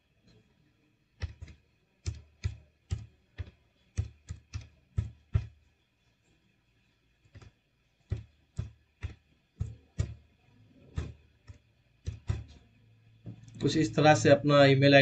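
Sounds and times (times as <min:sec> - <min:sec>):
computer keyboard typing: 0:01.2 - 0:05.6, 0:07.2 - 0:07.5, 0:08.1 - 0:10.3, 0:11.0 - 0:12.6.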